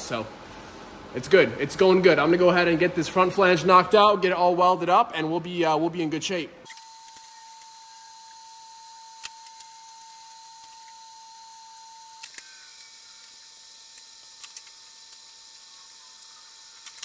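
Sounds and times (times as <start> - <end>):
welding whine: 6.7 - 17.0.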